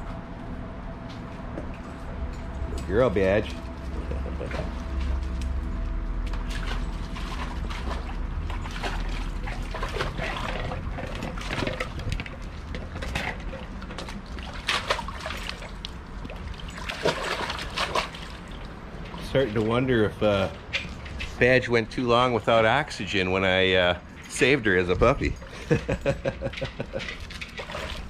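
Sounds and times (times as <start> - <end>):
water splashing in metal tank: 6.2 - 19.8, 26.7 - 28.0.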